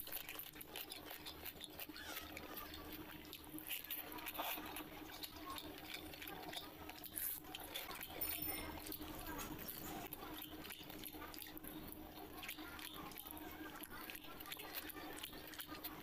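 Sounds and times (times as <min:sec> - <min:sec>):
fingers squelching through wet rice: 0:00.0 - 0:08.2
wet chewing and lip smacking: 0:00.0 - 0:16.0.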